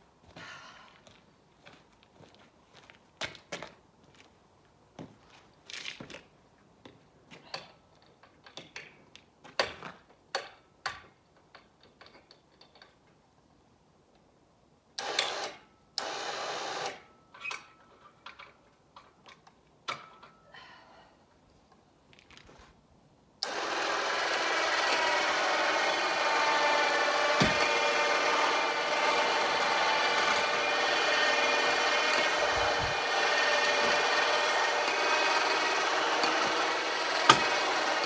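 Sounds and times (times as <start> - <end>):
steady mechanical noise: 23.4 - 38.0.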